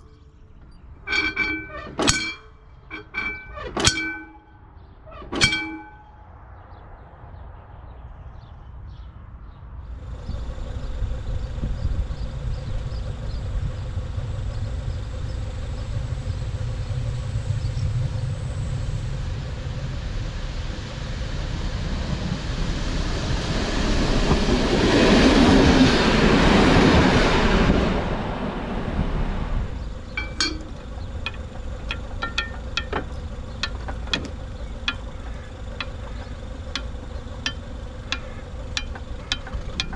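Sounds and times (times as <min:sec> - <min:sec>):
metallic clang: 0:00.0 - 0:06.3, 0:29.8 - 0:39.9
diesel train passing: 0:00.0 - 0:07.6, 0:09.8 - 0:39.9
metallic clicks and clinks: 0:30.2 - 0:39.9.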